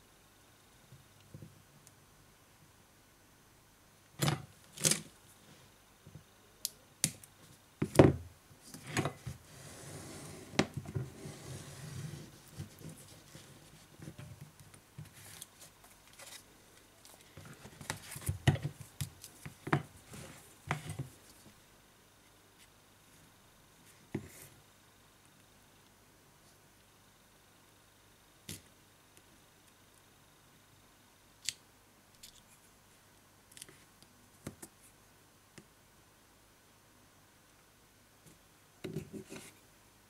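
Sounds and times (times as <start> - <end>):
soft rustling: 9.1 - 21.6.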